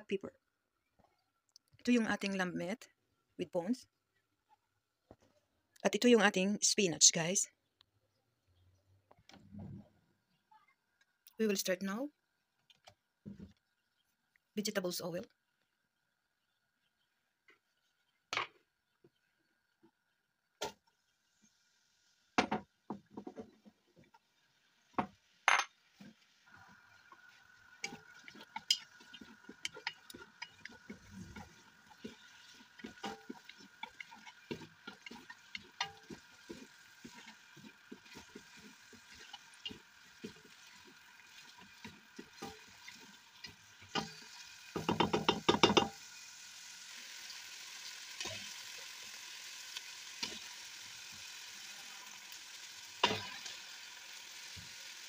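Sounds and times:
onions frying in oil: 0:20.6 - 0:55.0
wooden spoon scraping a pot: 0:25.9 - 0:45.9.

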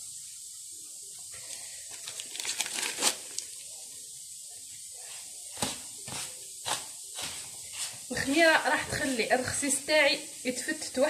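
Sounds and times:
paper sachet crinkling: 0:01.4 - 0:03.6
hands rubbing crumbly mixture: 0:04.9 - 0:09.8.

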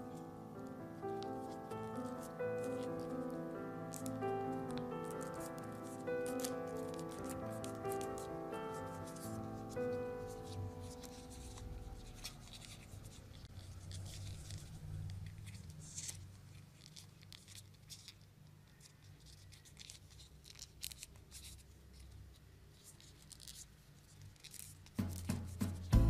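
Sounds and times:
background music: 0:00.0 - 0:13.4, 0:25.0 - 0:26.0
paper crinkling and rustling: 0:01.0 - 0:25.9.

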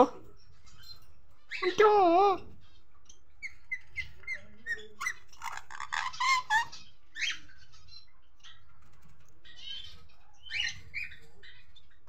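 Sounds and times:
parakeets chirping: 0:00.0 - 0:12.0
parakeets squawking: 0:00.7 - 0:08.1.

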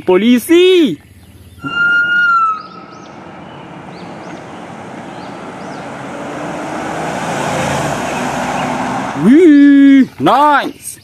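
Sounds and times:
road and engine noise: 0:00.0 - 0:11.0
held high tone: 0:01.6 - 0:03.8.

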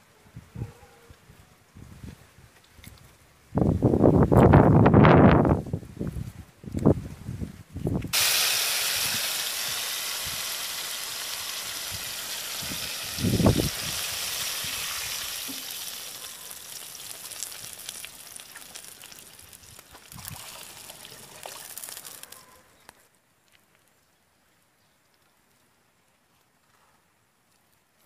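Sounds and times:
soup pot hissing and sizzling: 0:08.1 - 0:22.4.

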